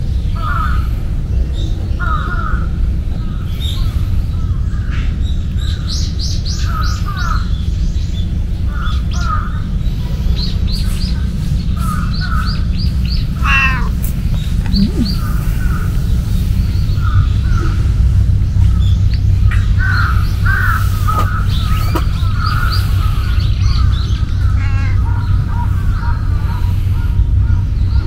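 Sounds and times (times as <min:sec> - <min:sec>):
steady low rumble: 0:00.0 - 0:28.0
crows cawing: 0:00.4 - 0:01.0, 0:02.0 - 0:03.8, 0:06.6 - 0:07.5, 0:08.7 - 0:09.8, 0:11.8 - 0:12.6, 0:13.2 - 0:14.1, 0:19.5 - 0:27.6
small bird chirping: 0:10.2 - 0:26.1.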